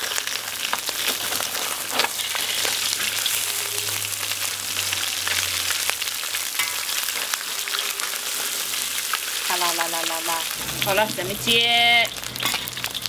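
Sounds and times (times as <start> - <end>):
fish sizzling in hot oil: 0.0 - 13.0
oil crackling and popping: 0.0 - 13.0.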